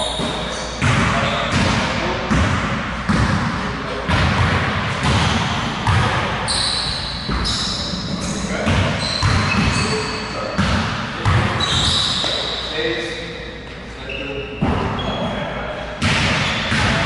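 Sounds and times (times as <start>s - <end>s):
basketballs bouncing on hardwood floor: 0.1s - 7.9s, 8.5s - 12.4s, 16.0s - 17.0s.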